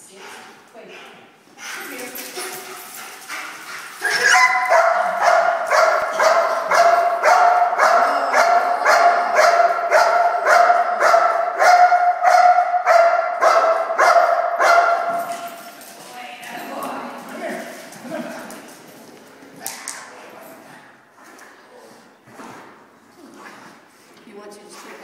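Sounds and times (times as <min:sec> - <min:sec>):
dog barking rapidly: 0:04.0 - 0:15.3.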